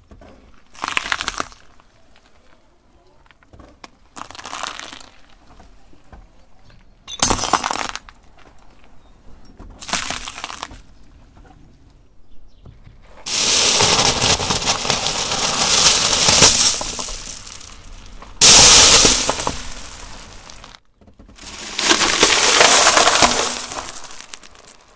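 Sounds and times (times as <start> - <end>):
glass marbles clattering and grinding: 7.1 - 8.1, 13.3 - 20.7, 21.4 - 24.9
plastic bag crackling: 13.3 - 20.8, 21.4 - 24.9.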